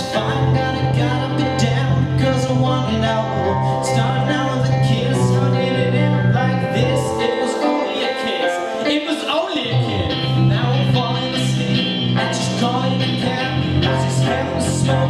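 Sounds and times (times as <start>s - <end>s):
low held notes: 0.0s - 9.1s
guitars strummed: 0.0s - 15.0s.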